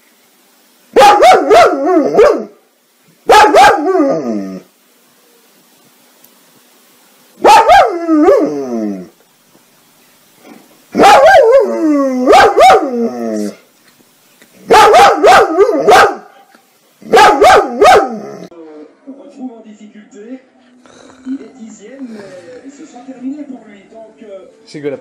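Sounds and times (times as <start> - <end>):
dog barking and howling: 0.9 - 2.6, 3.3 - 4.7, 7.4 - 9.1, 11.0 - 13.6, 14.6 - 16.4, 17.0 - 18.5.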